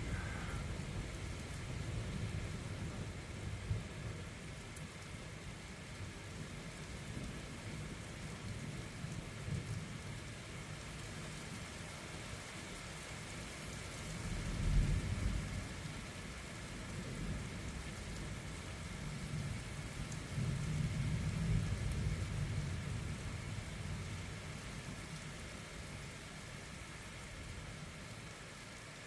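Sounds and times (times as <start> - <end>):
thunder rumbling: 0.0 - 4.1
steady rain falling: 0.0 - 29.0.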